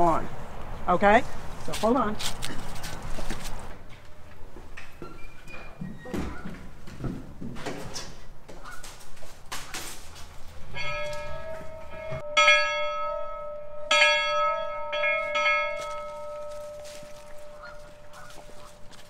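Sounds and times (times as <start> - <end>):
school bell ringing: 10.7 - 18.3.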